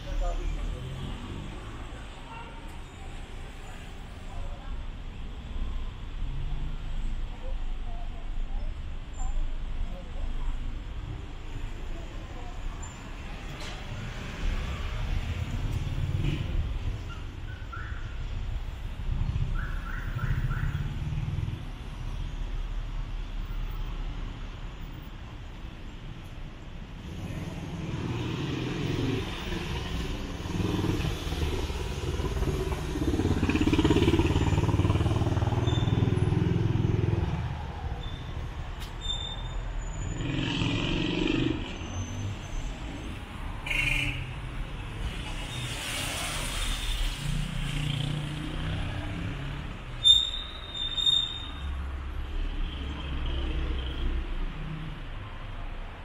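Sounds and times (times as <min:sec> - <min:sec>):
cars and motorbikes passing: 0:00.0 - 0:02.3, 0:09.7 - 0:25.7, 0:26.8 - 0:56.0
city street traffic: 0:00.0 - 0:56.0
vehicle engine rumbling: 0:02.9 - 0:54.9
high-pitched squeal: 0:37.9 - 0:40.2, 0:50.0 - 0:51.8.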